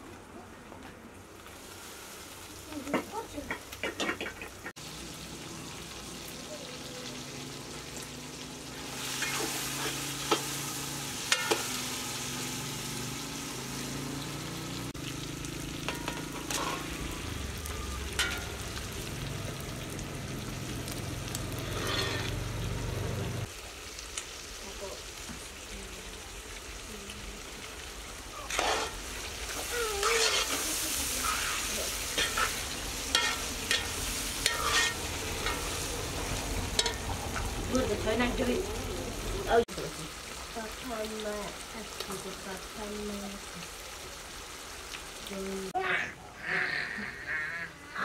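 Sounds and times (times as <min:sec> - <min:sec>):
meat and tomatoes sizzling: 0:00.0 - 0:48.0
metal skimmer scraping pot: 0:15.9 - 0:17.2, 0:21.6 - 0:22.4.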